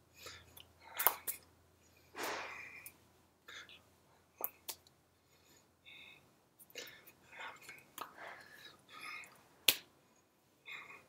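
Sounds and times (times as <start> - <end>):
hands slapping together: 9.6 - 9.9.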